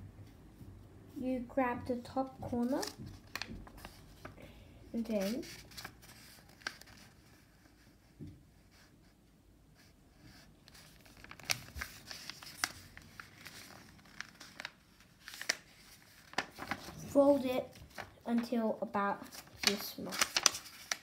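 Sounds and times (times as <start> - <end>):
paper rustling and crinkling: 2.2 - 7.9, 10.3 - 21.0.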